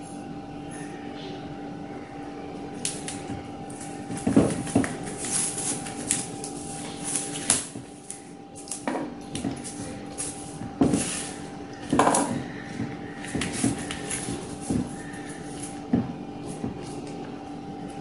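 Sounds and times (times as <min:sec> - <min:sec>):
faint hum: 0:00.0 - 0:18.0.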